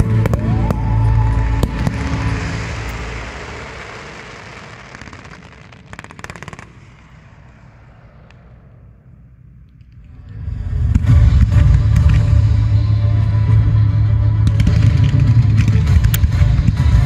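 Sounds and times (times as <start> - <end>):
firework bursts rumbling: 0.0 - 17.0
crackling firework pops: 1.6 - 8.8.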